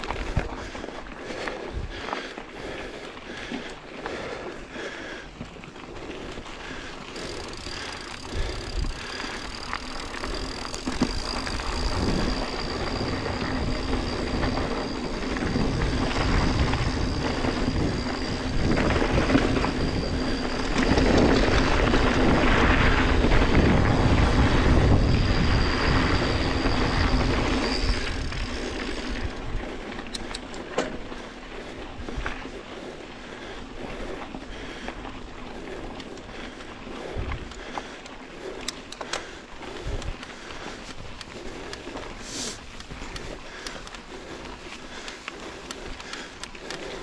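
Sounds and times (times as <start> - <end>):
bike rattling: 0.0 - 47.0
bike tyres rolling on dirt: 0.0 - 47.0
wind on microphone: 10.9 - 29.8
sharp clicks: 37.4 - 42.0.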